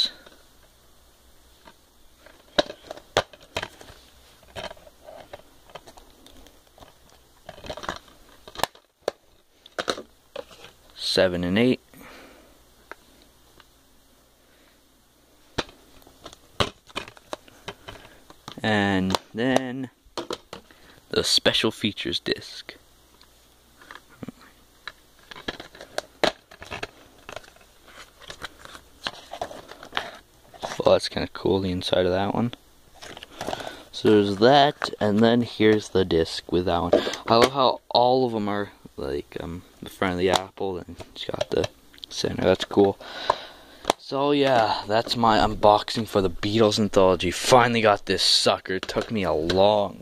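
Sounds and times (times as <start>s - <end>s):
plastic dvd cases clicking: 1.6s - 10.8s, 15.6s - 19.6s, 20.2s - 20.8s, 23.2s - 30.8s, 32.9s - 36.0s, 40.3s - 45.2s, 48.8s - 49.8s.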